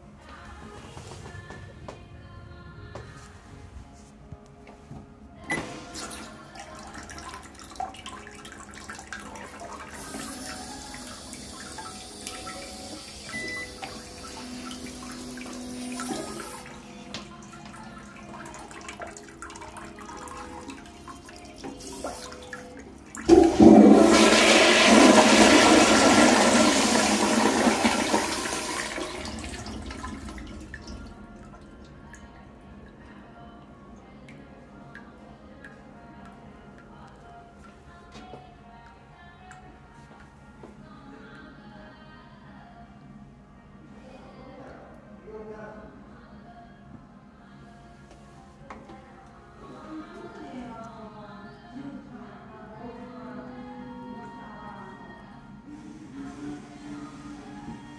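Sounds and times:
toilet flushing: 5.5 - 32.2, 55.6 - 57.9.

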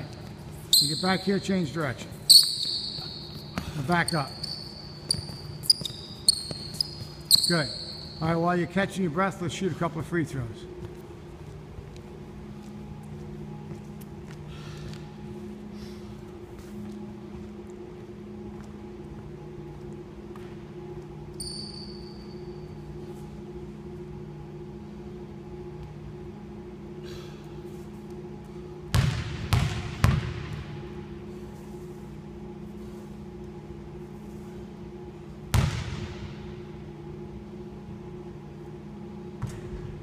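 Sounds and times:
steady low hum: 0.0 - 40.0
basketball bouncing on wooden floor: 28.9 - 30.5, 35.5 - 36.0.

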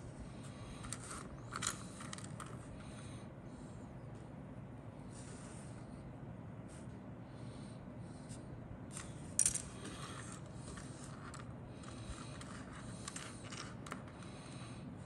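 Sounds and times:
plastic parts clicking and scraping: 0.8 - 2.6, 9.0 - 14.3.

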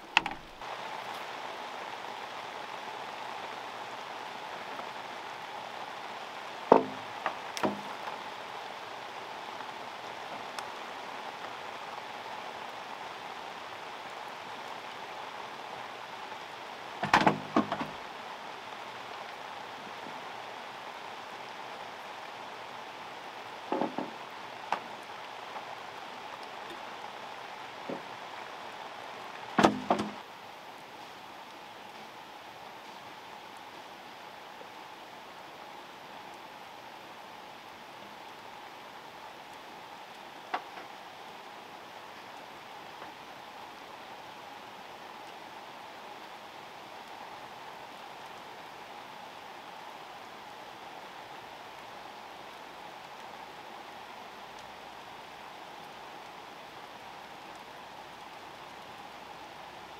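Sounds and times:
bamboo poles knocking: 0.0 - 0.6, 6.7 - 7.9, 17.0 - 17.9, 29.6 - 30.2
rain falling on a pond: 0.0 - 59.9.

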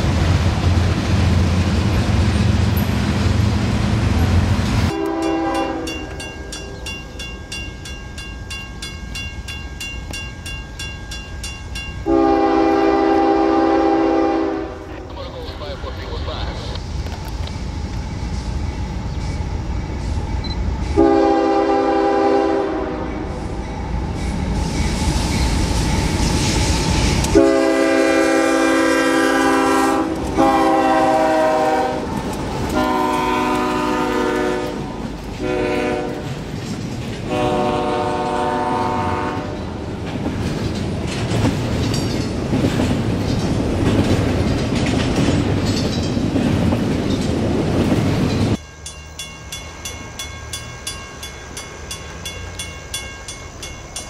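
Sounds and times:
train rumbling past: 0.0 - 54.0
train horn blasts: 4.9 - 6.8, 12.0 - 15.0, 20.9 - 23.4, 27.3 - 32.1, 32.7 - 36.3, 37.2 - 39.8
crossing bell dinging: 4.9 - 13.3, 48.2 - 54.0
wheels clacking over rail joints: 30.0 - 38.0, 39.6 - 54.0.

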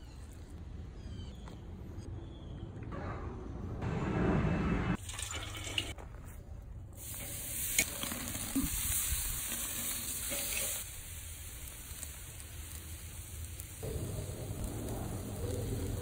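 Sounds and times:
steak sizzling on a grill: 7.0 - 16.0.

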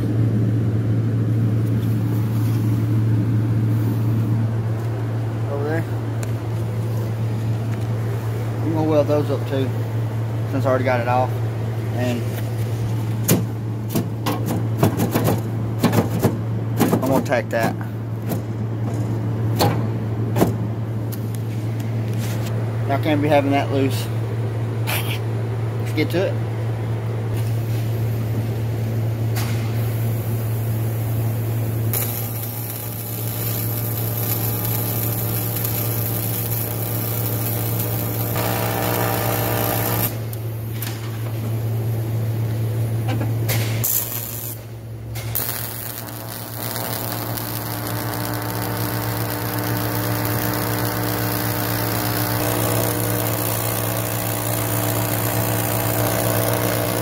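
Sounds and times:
welding arc buzzing: 31.4 - 41.2, 43.0 - 57.0.

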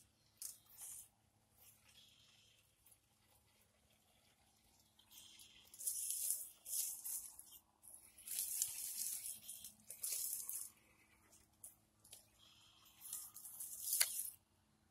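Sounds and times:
rc car tires crunching over rocks: 0.2 - 12.2, 12.8 - 14.4.

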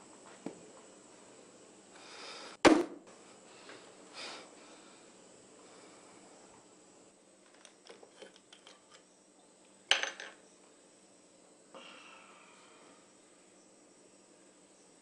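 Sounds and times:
glass clinking: 9.9 - 10.4.

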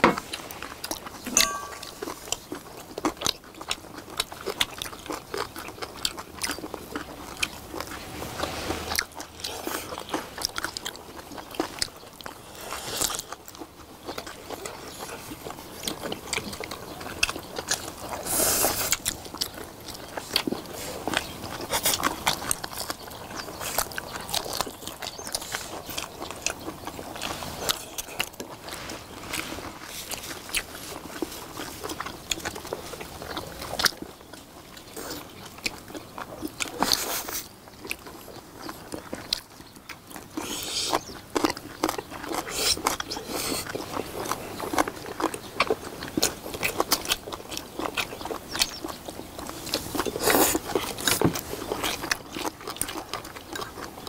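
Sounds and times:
people chewing and biting: 0.0 - 54.0.

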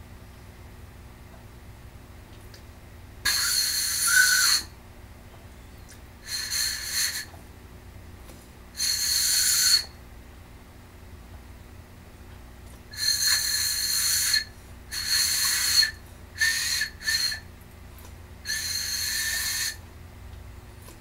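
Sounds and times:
breathy whistling tone: 3.3 - 4.8, 5.7 - 7.4, 8.7 - 10.0, 12.9 - 17.5, 18.4 - 19.9.

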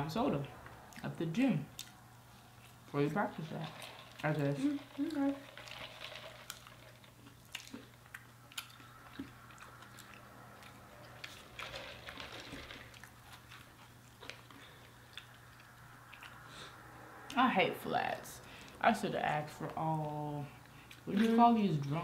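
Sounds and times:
steady low hum: 0.0 - 22.0
people chewing and biting: 3.7 - 16.8.

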